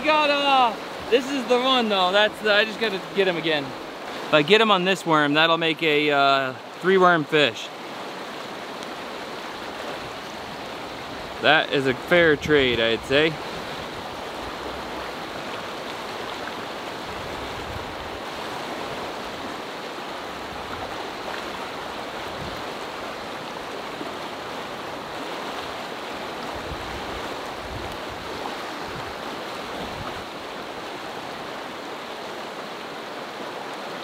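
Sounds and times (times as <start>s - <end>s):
river rushing over rapids: 0.0s - 34.0s.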